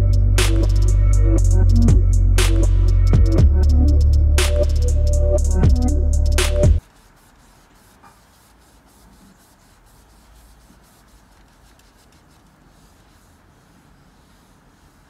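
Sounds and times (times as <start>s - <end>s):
cloth rubbing on wood: 6.8s - 15.0s.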